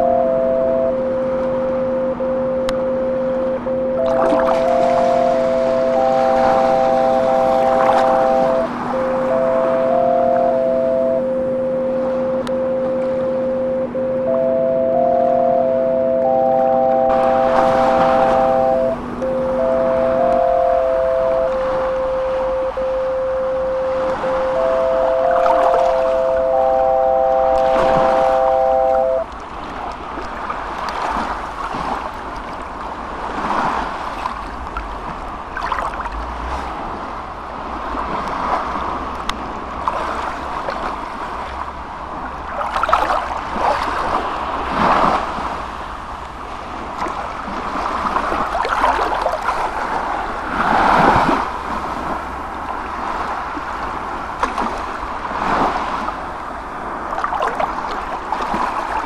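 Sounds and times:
steady low hum: 0:00.0 - 0:30.2
continuous rushing noise: 0:00.0 - 0:59.0.

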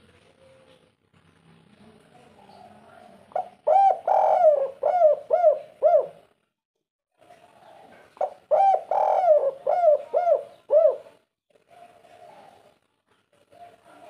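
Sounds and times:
dove cooing: 0:02.3 - 0:06.3, 0:07.2 - 0:12.7.

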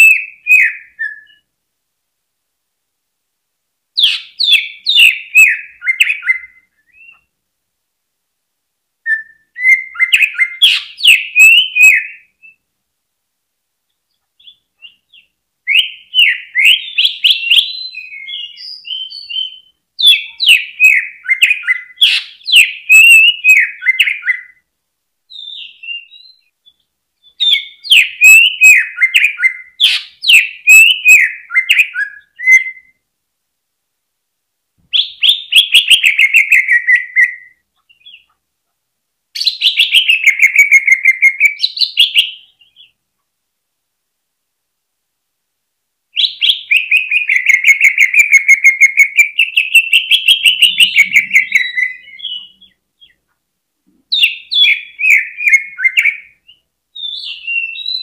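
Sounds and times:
bird singing fast chirps and trills: 0:04.0 - 0:07.3, 0:14.4 - 0:24.6, 0:25.3 - 0:32.9, 0:46.2 - 0:53.2, 0:54.1 - 0:58.0.

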